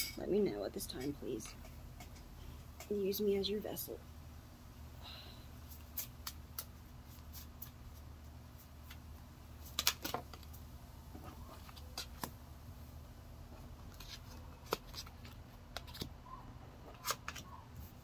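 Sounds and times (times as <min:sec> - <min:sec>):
cards being shuffled: 0:05.7 - 0:09.0, 0:09.6 - 0:10.5, 0:11.3 - 0:12.4, 0:13.8 - 0:16.1, 0:16.8 - 0:18.0.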